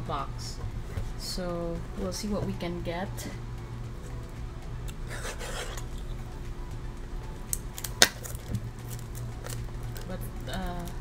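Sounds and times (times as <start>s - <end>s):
plastic wrap rustle: 7.8s - 11.0s.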